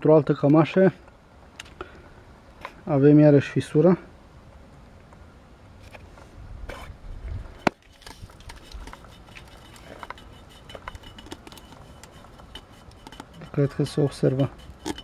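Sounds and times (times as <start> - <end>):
handling noise: 5.8 - 15.0.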